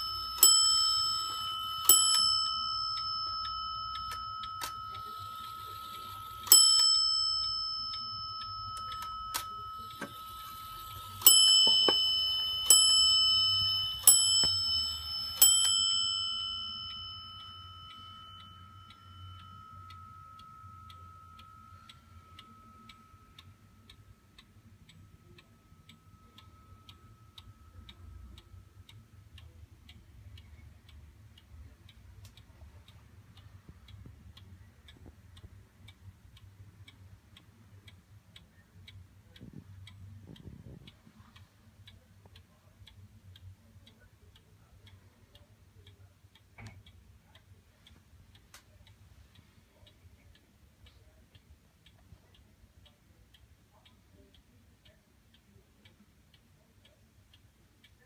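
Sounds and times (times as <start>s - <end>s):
wall clock striking: 0.0s - 28.8s
clock ticking faintly: 0.0s - 58.0s.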